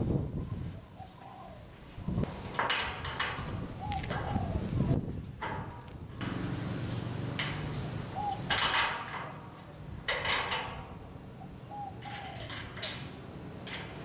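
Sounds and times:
faint bird calling: 0.8 - 2.2, 3.8 - 5.0, 8.1 - 8.5, 11.4 - 13.0.

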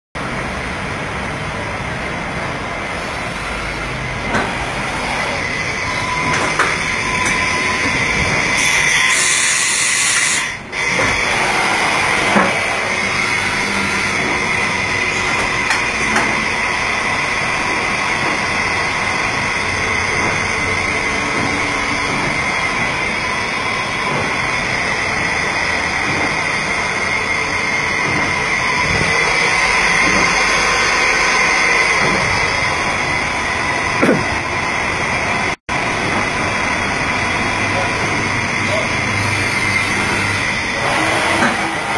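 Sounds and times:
machine noise: 2.5 - 41.9.

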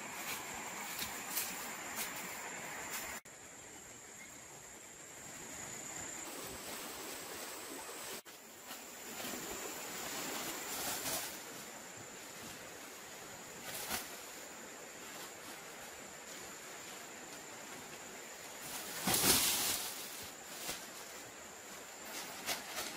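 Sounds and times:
net swishing through leafy undergrowth: 6.2 - 22.9.

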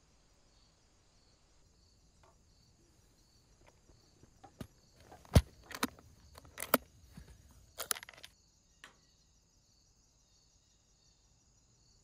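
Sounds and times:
case latches clicking shut: 4.5 - 8.3.

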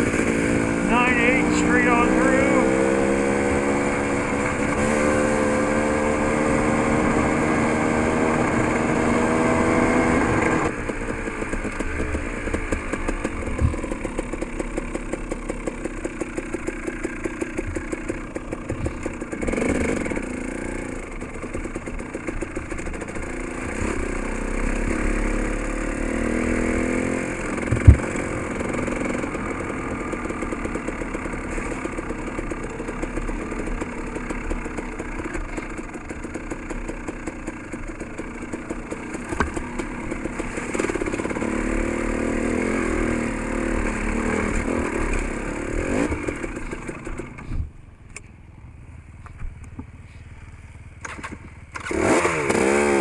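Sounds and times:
dirt bike engine revving: 0.0 - 10.7, 18.6 - 21.0, 22.7 - 32.0, 39.0 - 47.0, 51.7 - 53.0.

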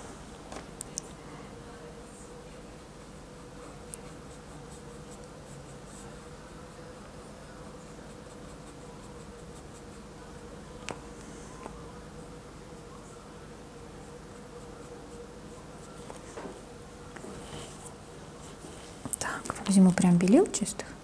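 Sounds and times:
faint steady hum: 0.0 - 21.0
brush scratching oil paint: 2.9 - 7.0, 7.6 - 10.2.

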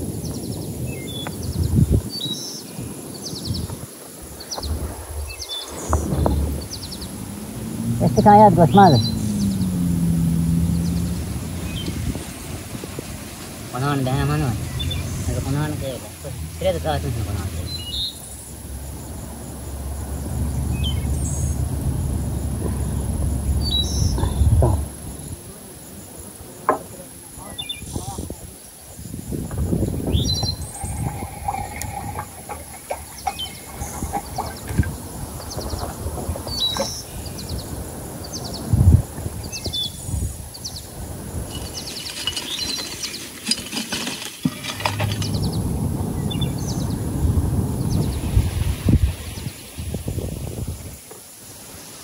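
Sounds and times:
wind rumble on microphone: 0.0 - 26.6, 27.3 - 51.7
small birds chirping: 0.1 - 48.6
dull low thump: 4.6 - 8.0, 24.2 - 25.0.

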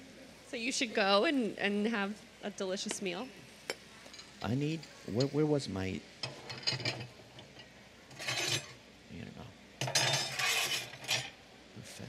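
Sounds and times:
utensils and pans clattering: 6.2 - 8.8, 9.8 - 11.4.

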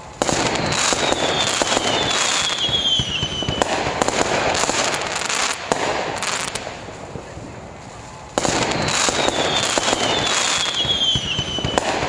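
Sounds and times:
falling firework whistle: 0.0 - 4.9, 8.6 - 12.0
fireworks bursting and crackling: 0.0 - 12.0.

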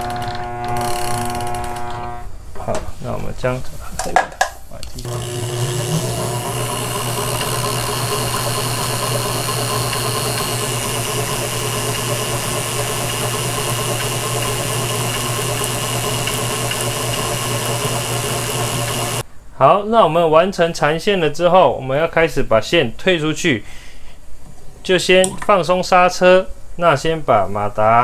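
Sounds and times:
electric motor humming: 0.0 - 2.3, 5.0 - 19.2.

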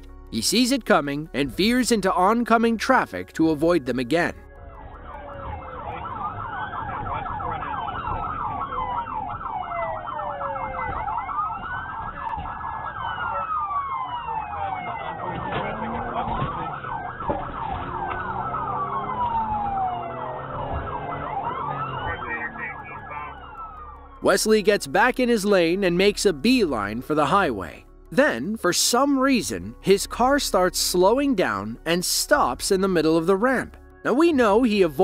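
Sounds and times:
engine and road rumble: 4.0 - 27.7
police siren yelp and wail: 4.5 - 24.6.

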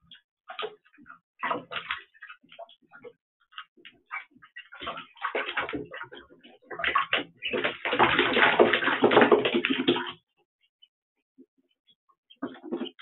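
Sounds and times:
ducklings splashing in water: 0.5 - 10.2.

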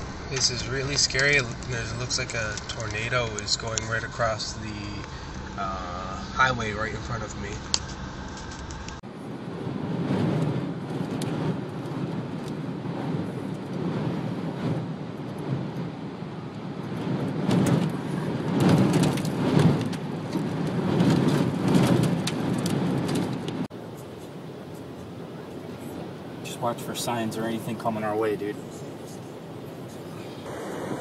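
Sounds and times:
tyre and road noise: 0.0 - 31.0
rain beating on car: 10.0 - 23.7.

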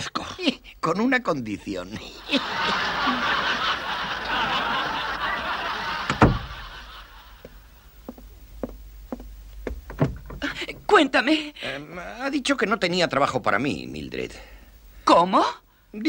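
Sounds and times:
studio audience laughing: 2.0 - 7.7.

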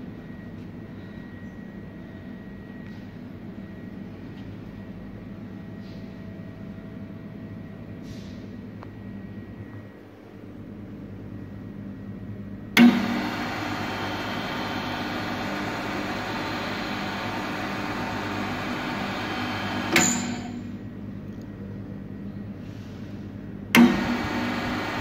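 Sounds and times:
electric motor humming: 12.8 - 20.7, 23.8 - 25.0.

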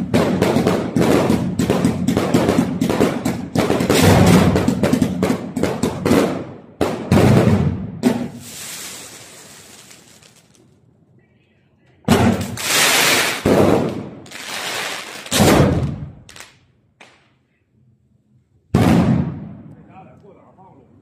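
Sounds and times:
fireworks launch thumps and bursts: 0.0 - 10.7, 12.0 - 17.3, 18.7 - 19.7
fireworks crackling hiss: 8.1 - 10.8, 12.3 - 13.6, 14.2 - 15.5.

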